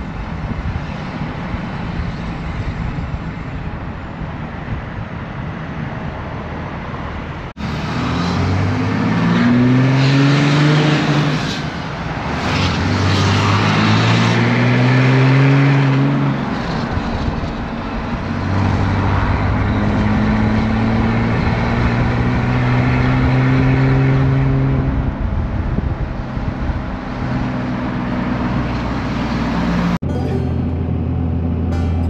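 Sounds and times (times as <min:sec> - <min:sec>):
road and tyre noise: 0:00.0 - 0:32.0
truck engine accelerating: 0:07.5 - 0:32.0
music: 0:30.0 - 0:32.0.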